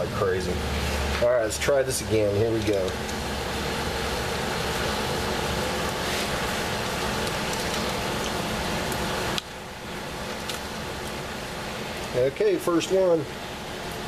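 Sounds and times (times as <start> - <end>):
steady whirring room noise: 0.0 - 14.0.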